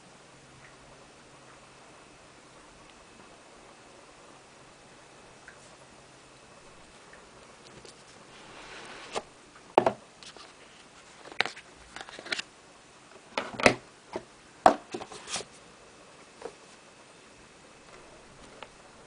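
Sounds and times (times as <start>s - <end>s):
soft rustle: 6.8s - 9.3s.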